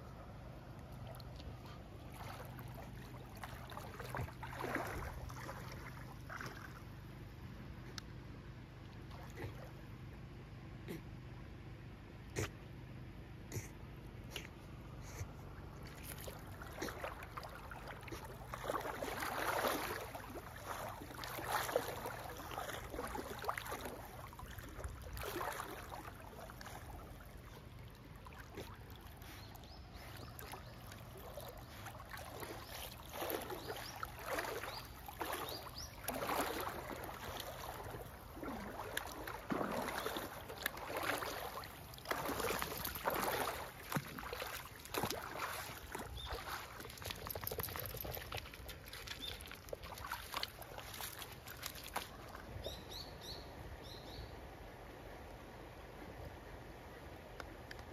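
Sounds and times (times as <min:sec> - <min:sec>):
dog paddling water splashing: 0:00.1 - 0:07.8, 0:08.5 - 0:10.0, 0:14.7 - 0:53.2.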